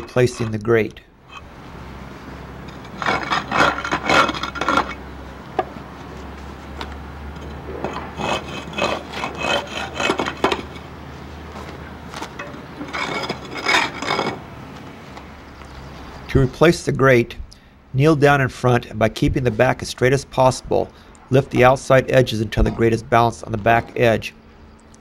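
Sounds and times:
hand tool scraping grit off metal: 0.0s - 0.7s, 2.6s - 5.0s, 7.7s - 10.9s, 12.2s - 14.5s.

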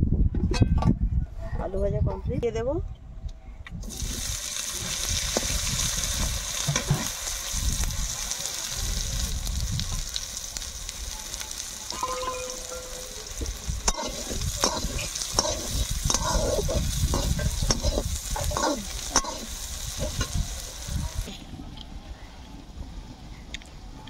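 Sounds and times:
onions sizzling in oil: 3.8s - 21.4s.

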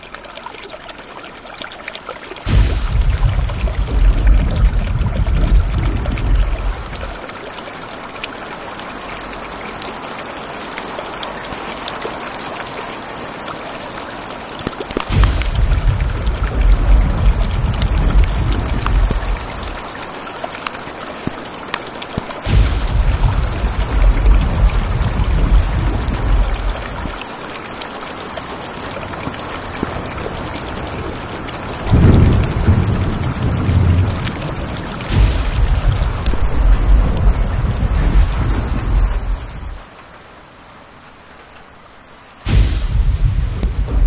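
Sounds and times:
heavy rain falling: 0.0s - 44.0s
deep thunder rumbling: 2.5s - 7.2s, 15.1s - 19.8s, 22.5s - 27.2s, 31.9s - 39.8s, 42.5s - 44.0s.

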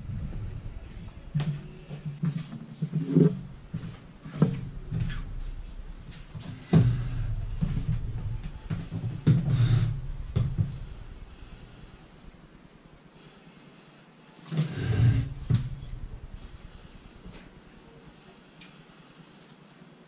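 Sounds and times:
wooden chair scraping: 0.0s - 11.2s, 14.6s - 15.8s
knocks and thumps on wooden floor: 0.2s - 12.4s, 14.7s - 17.6s.

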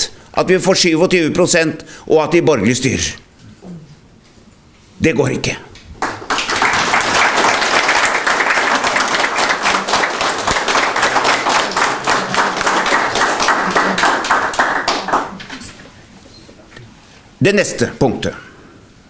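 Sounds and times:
audience applauding: 6.0s - 15.8s.

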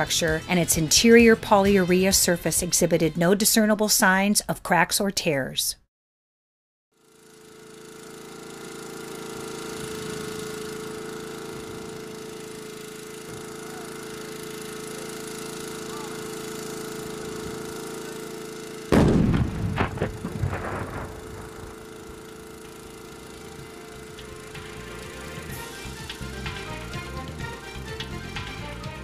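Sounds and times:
steady hum with hiss: 9.2s - 29.0s
explosive charge bang: 18.9s - 21.7s
sharp cracks: 18.9s - 23.0s.

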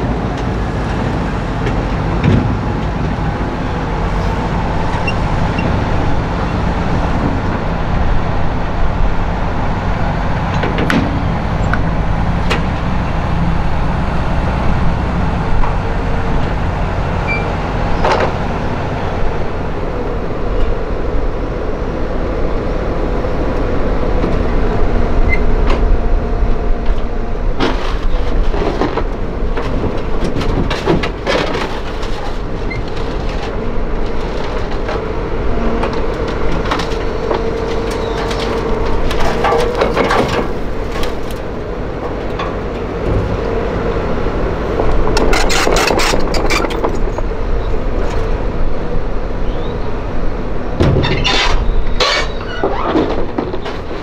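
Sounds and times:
excavator diesel engine running: 0.0s - 54.0s
tractor engine running: 0.0s - 54.0s
sharp knocks and clanks: 10.5s - 11.8s, 50.8s - 54.0s.

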